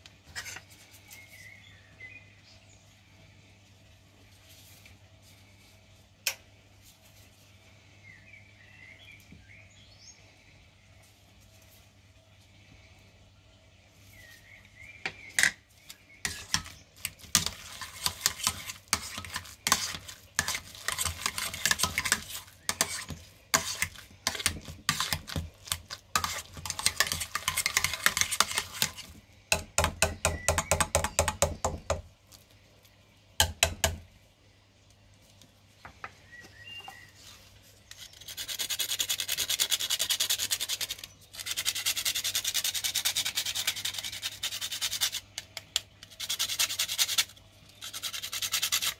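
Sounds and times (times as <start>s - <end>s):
nutmeg scraping on grater: 16.2s - 29.2s, 37.9s - 45.4s, 46.0s - 48.9s
potato masher knocking pot: 16.3s - 32.0s.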